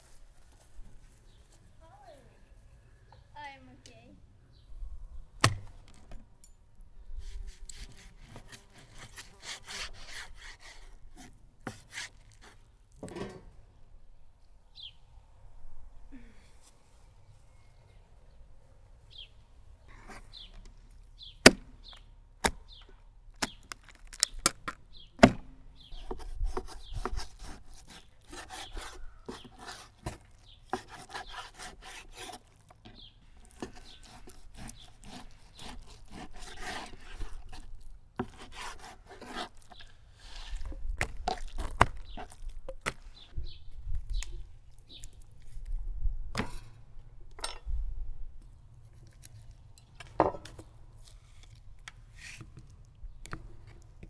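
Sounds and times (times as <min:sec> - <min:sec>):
rubbing and scraping: 0:07.2 - 0:12.7, 0:25.9 - 0:42.5.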